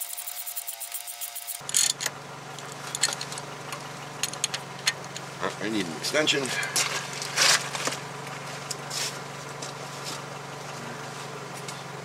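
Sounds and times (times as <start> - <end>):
hand tools clicking: 0.0 - 2.1
low mechanical hum: 0.0 - 12.0
scraping rustle: 6.7 - 10.3.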